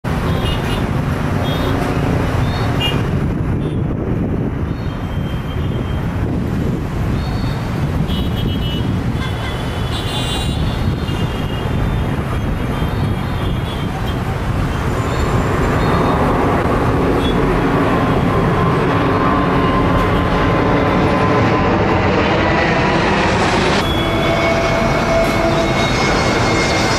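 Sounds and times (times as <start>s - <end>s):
jet engines rumbling: 0.0s - 26.9s
whining engine tone: 11.5s - 26.9s.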